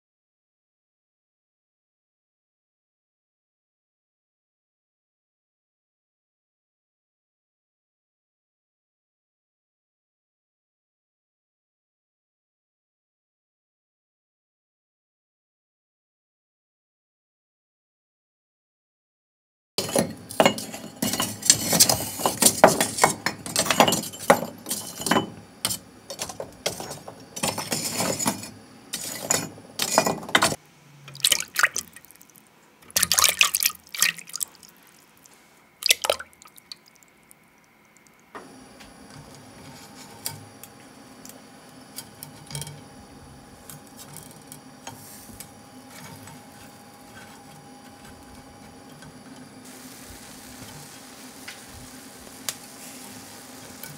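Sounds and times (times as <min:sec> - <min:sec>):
fish splashing in water: 0:31.2 - 0:32.4, 0:33.0 - 0:37.1
fish grilling hiss: 0:44.8 - 0:47.4, 0:49.6 - 0:53.9.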